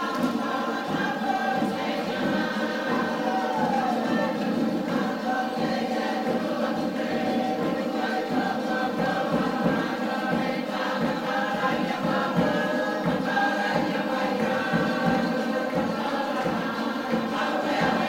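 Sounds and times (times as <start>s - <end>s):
choir singing long notes: 0.0s - 18.0s.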